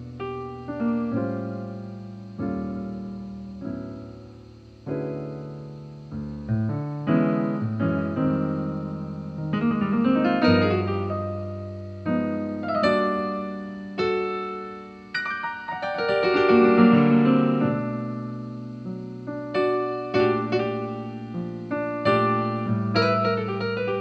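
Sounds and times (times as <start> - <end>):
piano chords: 0.0 - 24.0.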